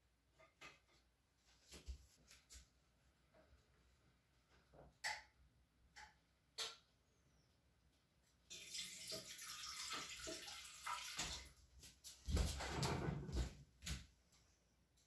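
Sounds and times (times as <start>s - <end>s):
liquid pouring into metal pan: 8.5s - 11.5s.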